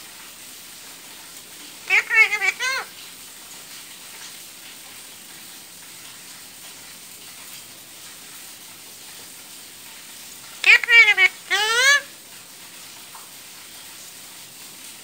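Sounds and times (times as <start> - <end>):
parakeet calls: 1.8 - 2.9, 10.6 - 12.1.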